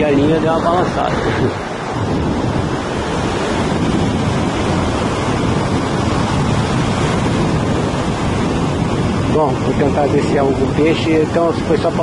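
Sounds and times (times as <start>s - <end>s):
surf breaking on beach: 0.0s - 12.0s
wind buffeting microphone: 0.0s - 12.0s.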